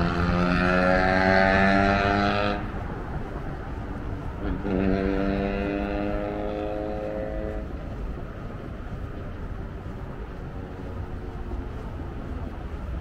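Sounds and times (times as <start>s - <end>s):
vehicle engine rising in pitch: 0.0s - 2.9s, 4.3s - 7.8s
low traffic rumble: 0.0s - 13.0s.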